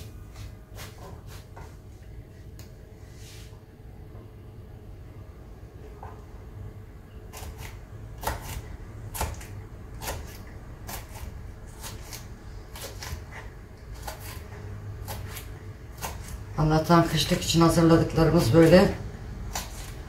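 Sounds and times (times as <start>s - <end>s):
low steady hum: 0.0s - 20.0s
knife cutting peppers on board: 7.3s - 16.4s, 18.4s - 20.0s.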